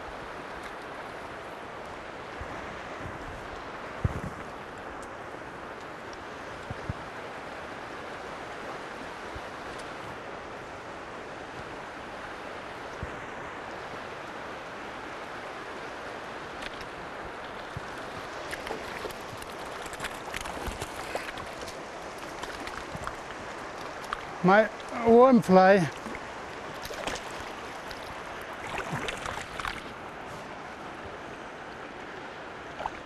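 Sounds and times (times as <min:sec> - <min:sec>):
river rushing: 0:00.0 - 0:33.0
fish splashing at surface: 0:26.8 - 0:29.9.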